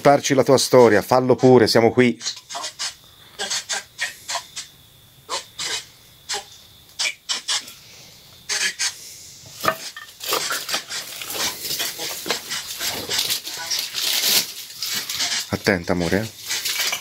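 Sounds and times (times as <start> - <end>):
dry leaves rustling: 10.1 - 17.0.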